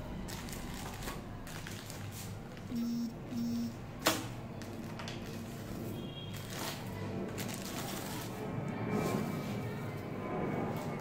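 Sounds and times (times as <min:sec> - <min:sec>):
plastic wrap crinkling: 0:00.2 - 0:02.7, 0:06.3 - 0:08.4
short steady tones: 0:02.7 - 0:03.8.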